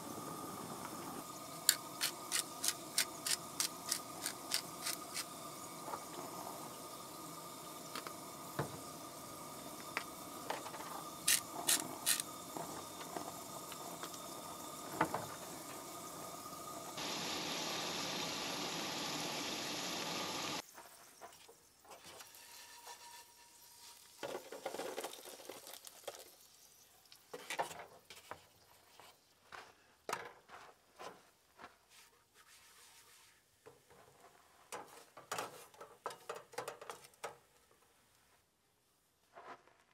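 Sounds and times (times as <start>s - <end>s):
food sizzling in oil: 1.2s - 21.0s, 21.7s - 27.3s.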